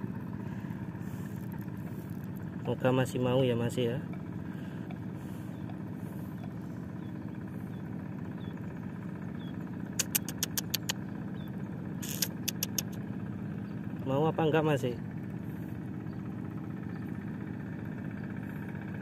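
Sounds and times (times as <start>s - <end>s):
low engine drone: 0.0s - 19.0s
sharp clicks: 10.0s - 11.0s, 12.0s - 13.0s.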